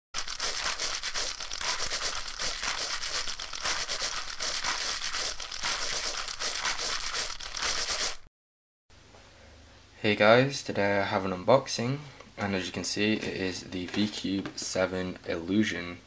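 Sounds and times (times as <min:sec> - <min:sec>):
plastic crinkling: 0:00.2 - 0:08.3.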